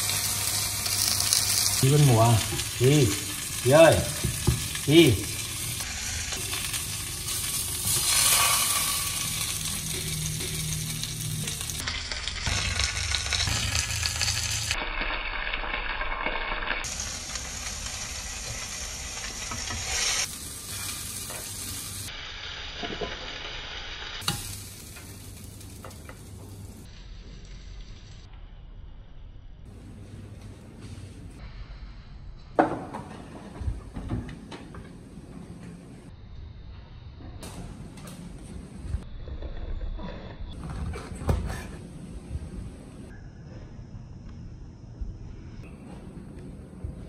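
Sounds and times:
food sizzling in a pan: 0:00.0 - 0:27.8.

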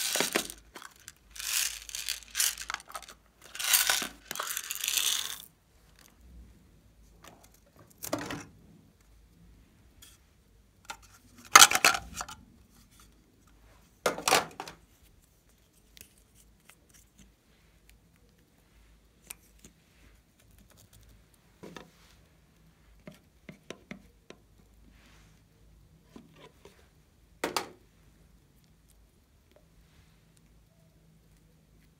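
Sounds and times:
plastic containers clattering: 0:00.0 - 0:05.5, 0:08.0 - 0:08.5, 0:10.9 - 0:12.4, 0:14.1 - 0:14.8.

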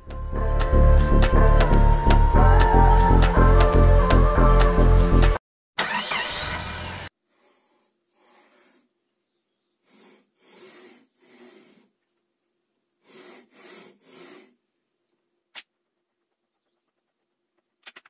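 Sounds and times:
music: 0:00.0 - 0:05.4.

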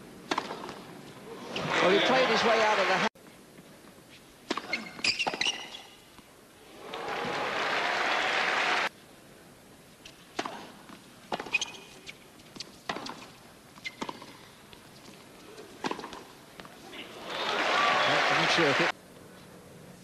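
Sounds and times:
racket striking tennis ball: 0:00.3 - 0:00.8, 0:10.3 - 0:11.9, 0:12.6 - 0:13.3, 0:13.9 - 0:14.5, 0:15.8 - 0:16.7
crowd applause: 0:06.7 - 0:08.9, 0:17.0 - 0:18.9.

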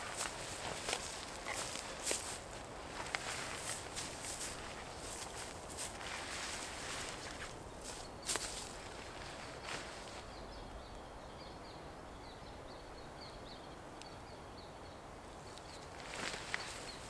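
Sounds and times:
footsteps rustling: 0:00.0 - 0:10.3, 0:15.8 - 0:17.0.

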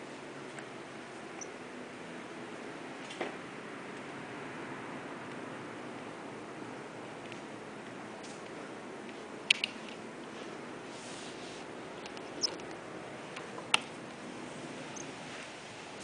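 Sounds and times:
steady hiss: 0:05.6 - 0:16.0.

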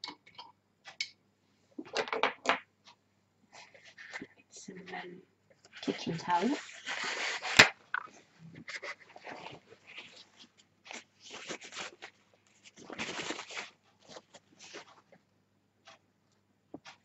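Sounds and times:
paper towel crumpling: 0:05.8 - 0:15.0.

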